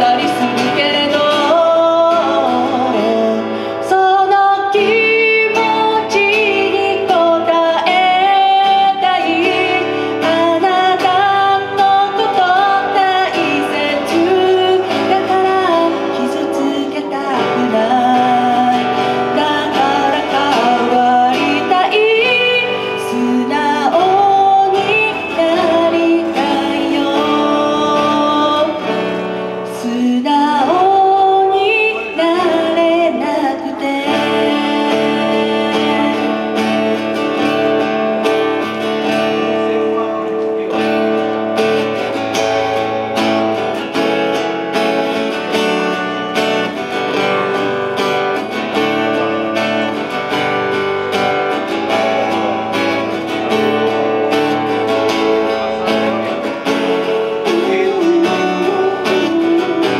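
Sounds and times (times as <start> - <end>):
woman singing: 0.0 - 39.7, 40.6 - 59.9
acoustic guitar: 0.0 - 59.9.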